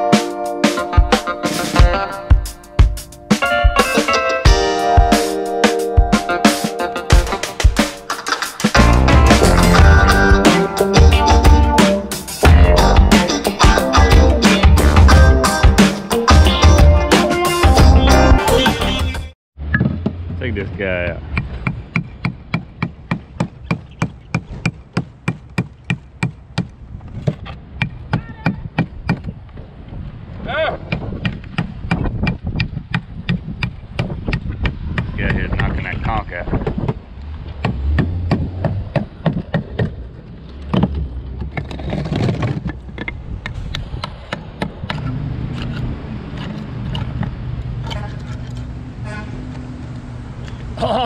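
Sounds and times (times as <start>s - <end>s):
low engine hum: 36.9s - 41.8s.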